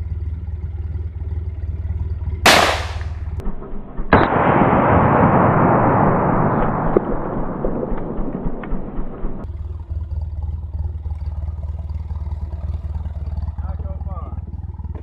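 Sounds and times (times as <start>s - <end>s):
pistol shot: 2.5s - 3.2s, 4.1s - 9.4s
steady rushing noise: 4.2s - 9.5s.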